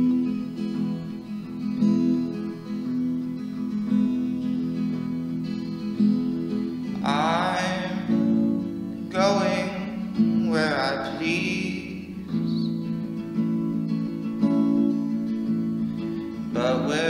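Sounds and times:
strummed acoustic guitar: 0.0 - 17.0
person singing: 6.9 - 8.3, 9.1 - 12.7, 16.4 - 17.0.

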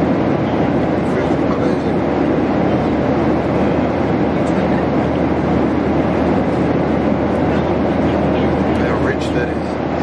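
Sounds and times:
airliner cabin engine rush: 0.0 - 10.0.

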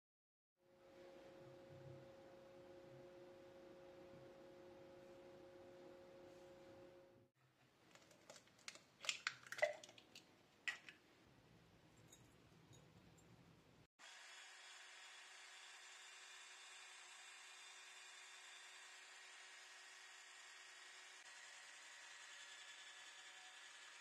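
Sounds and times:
faint steady hum: 0.7 - 7.3
egg cracked on glass bowl: 7.9 - 11.0.

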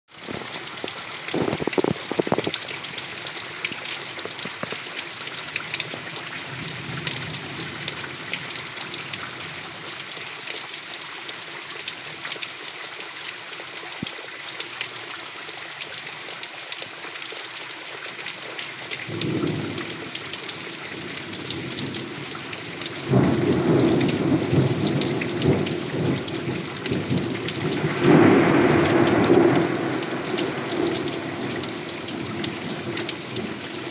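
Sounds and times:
heavy rain splashing into puddles: 0.1 - 33.9
thunder rumbling: 23.0 - 33.9.

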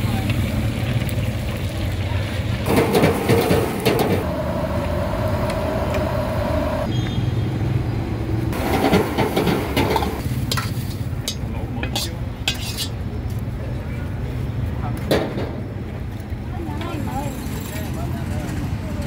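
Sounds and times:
low motor hum: 2.6 - 6.9
high whine: 3.8 - 6.9.

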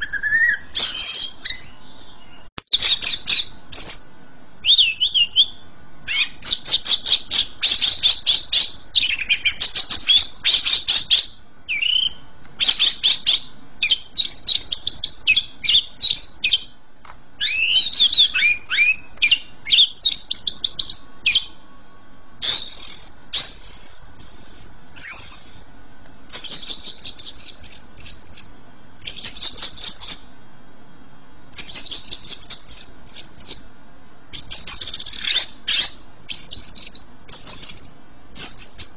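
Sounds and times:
bird slurred whistles: 0.0 - 5.5, 17.4 - 21.5, 22.4 - 28.2
bird chattering song: 0.0 - 16.8, 17.4 - 21.6, 22.4 - 30.3, 31.5 - 33.7, 34.3 - 38.9.

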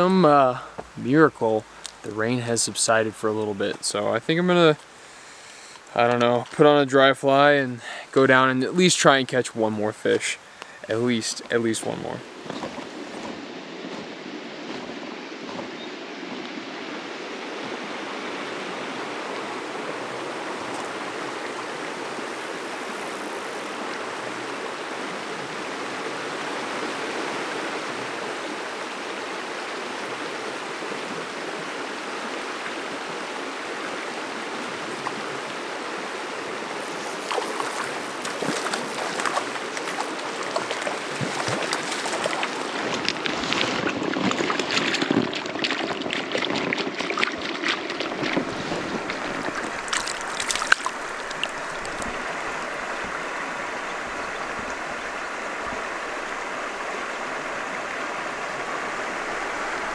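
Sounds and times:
creek running over rocks: 0.0 - 59.9
fish thrashing splashes: 36.8 - 52.8.

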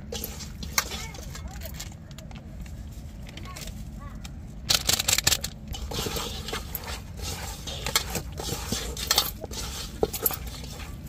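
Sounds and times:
hand mixing meat in a bowl: 0.0 - 3.2, 5.6 - 11.0.

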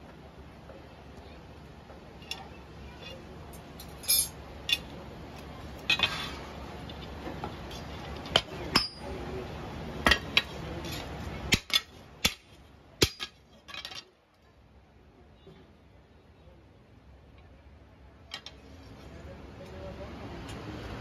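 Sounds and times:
steel blade clanking on metal: 3.8 - 4.9.

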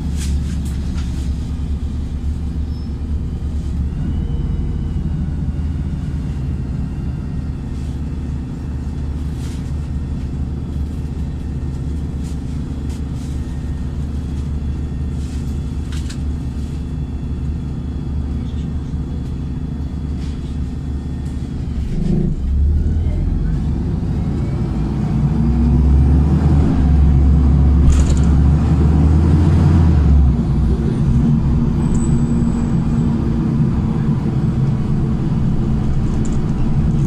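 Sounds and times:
bus engine drone: 0.0 - 37.0.

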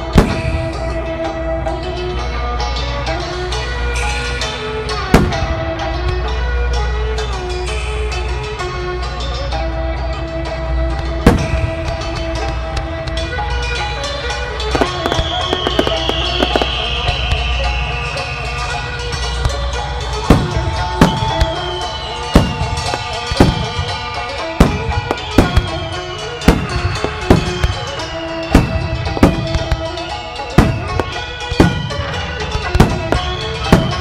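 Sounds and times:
music with drum beat: 0.0 - 1.2, 5.1 - 6.2, 11.0 - 13.3, 14.6 - 17.6, 19.2 - 34.0
firework shells booming: 0.1 - 1.3, 5.1 - 6.2, 11.3 - 13.2, 14.7 - 17.7, 19.2 - 34.0
firework shell boom: 0.2 - 0.8, 5.2 - 5.6, 11.3 - 12.0.

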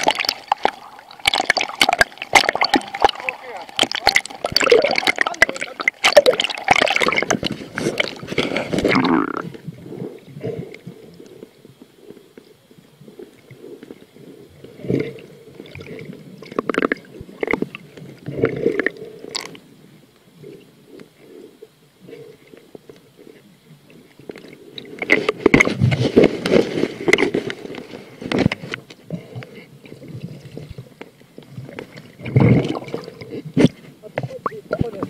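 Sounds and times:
water splashing: 0.0 - 10.6, 29.9 - 35.0
exhaled bubbles gurgling: 0.0 - 27.6, 29.1 - 35.0
scuba regulator breathing: 7.1 - 16.4, 20.3 - 23.6, 24.4 - 30.6.

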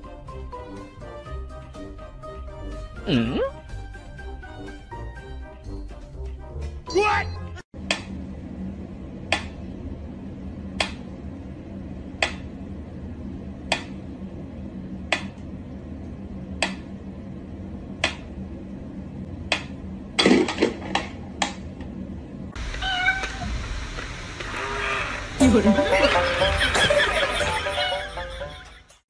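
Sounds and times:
steady low hum: 7.8 - 29.0.

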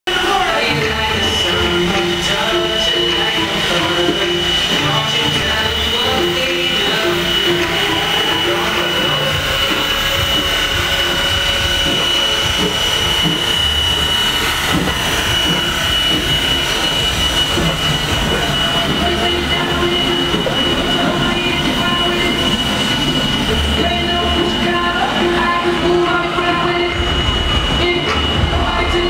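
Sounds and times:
steady high tone: 0.1 - 29.0
steam locomotive rolling past: 0.1 - 29.0.

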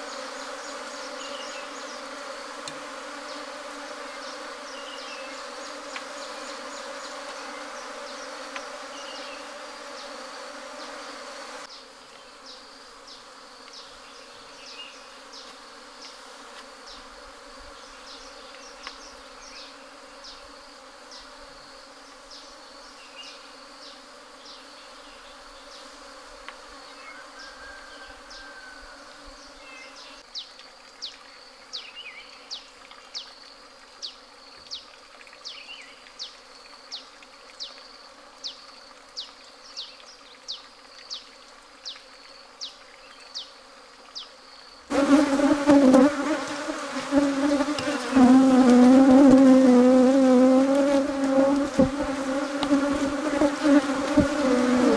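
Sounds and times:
bees buzzing: 0.0 - 30.2, 44.9 - 54.9.

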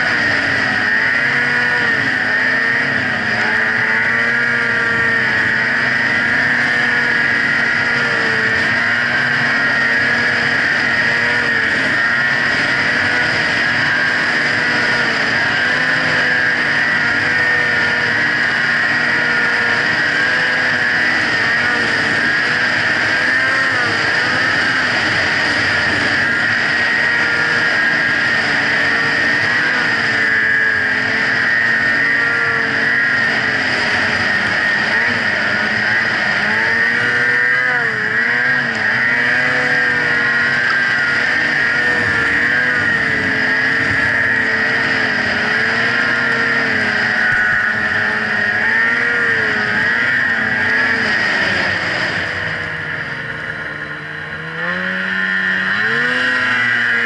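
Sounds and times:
snowmobile engine running: 0.0 - 57.0.

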